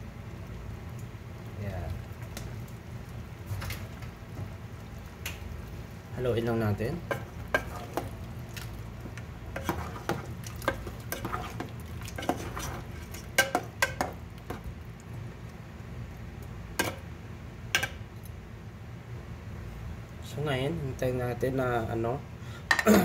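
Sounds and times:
liquid sizzling: 0.0s - 18.4s
metal spoon scraping a pot: 7.1s - 8.1s, 9.5s - 14.1s.

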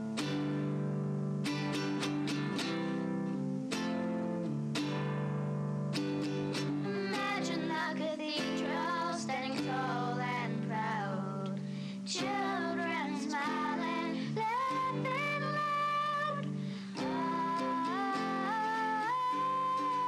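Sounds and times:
plucked acoustic guitar: 0.0s - 20.0s
person singing slow song: 6.4s - 20.0s.

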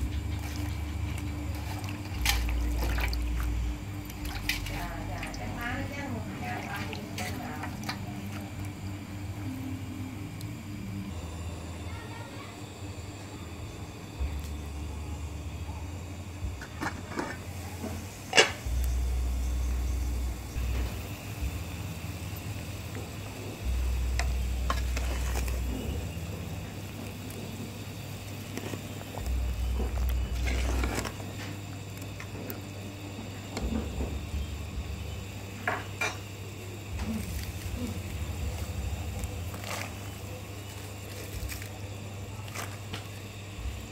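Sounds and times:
low rumble: 0.0s - 11.9s, 17.4s - 31.8s, 36.8s - 42.4s.

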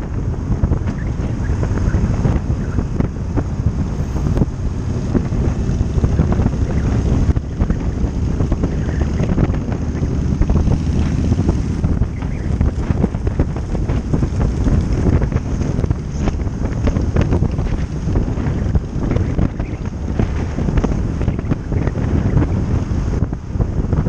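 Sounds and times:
motorcycle engine: 0.0s - 24.0s
road noise: 0.0s - 24.0s
wind buffeting microphone: 0.0s - 24.0s.

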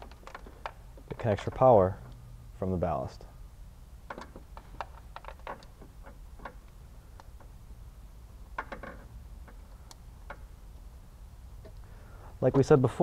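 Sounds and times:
plastic wiring connectors clicking: 0.0s - 1.6s, 4.1s - 7.5s, 9.5s - 10.4s.

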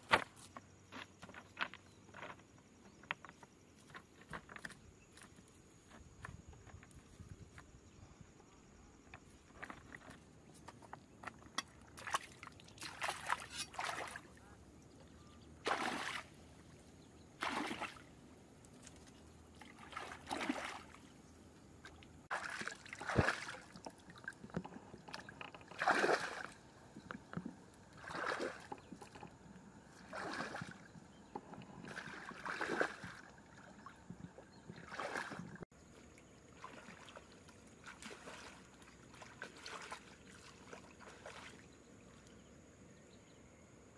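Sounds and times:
water sloshing and splashing: 9.2s - 42.3s.

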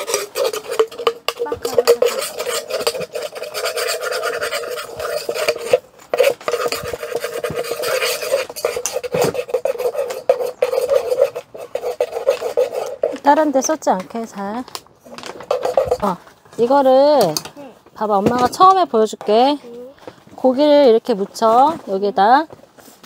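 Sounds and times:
spoon scraping a bowl: 0.0s - 13.8s, 15.1s - 17.4s.

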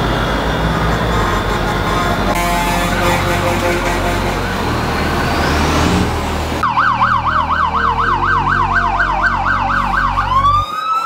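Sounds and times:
low engine rumble: 0.0s - 10.6s
rushing noise: 0.0s - 11.0s
electronic vehicle siren yelping: 6.6s - 11.0s.

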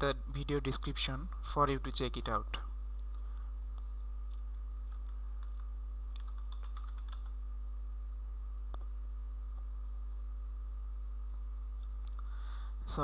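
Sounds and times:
low electrical hum: 0.0s - 13.0s
computer keyboard typing: 4.3s - 7.4s.

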